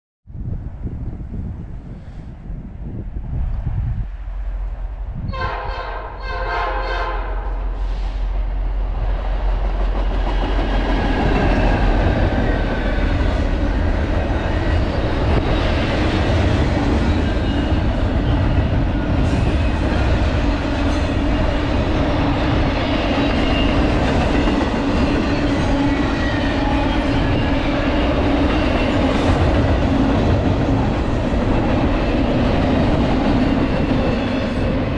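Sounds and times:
train wheels rumbling on rails: 0.6 - 34.9
train horn blasts: 5.2 - 8.1.

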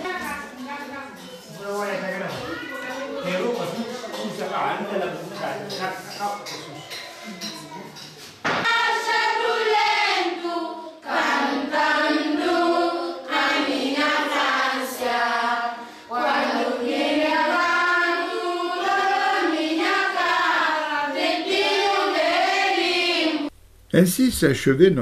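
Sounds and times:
children singing in unison: 6.7 - 23.5.

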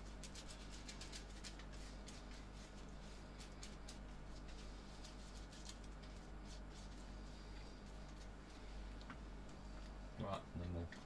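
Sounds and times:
glue brush strokes: 0.0 - 8.8.

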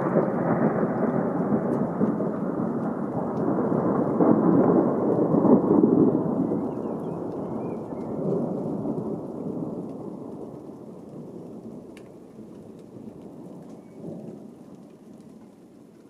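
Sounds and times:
thunder rumbling: 0.0 - 16.0.

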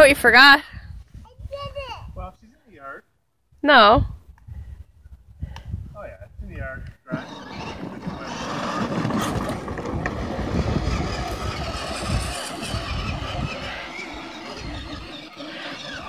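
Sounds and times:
electric toy quad motor rumble: 7.1 - 16.0.

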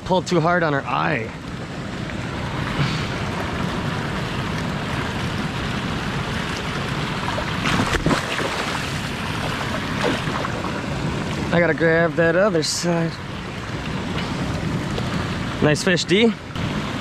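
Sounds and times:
water rushing over spillway: 0.0 - 17.0
fish splashing: 2.1 - 11.5.

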